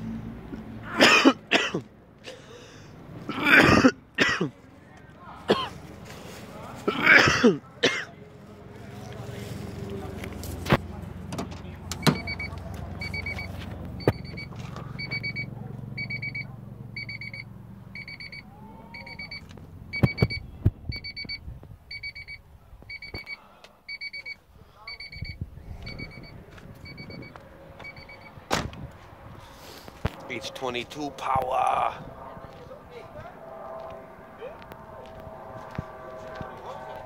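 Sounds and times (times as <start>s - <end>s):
car warning chime beeping: 12.0s - 28.4s.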